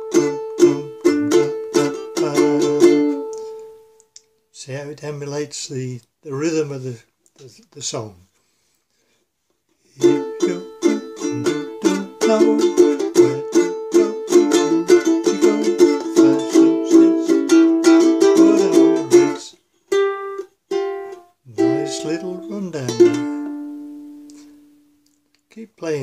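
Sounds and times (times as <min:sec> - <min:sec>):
plucked ukulele notes: 0:00.0 - 0:03.8, 0:10.0 - 0:24.8
ukulele strumming: 0:00.0 - 0:03.9, 0:10.0 - 0:24.9.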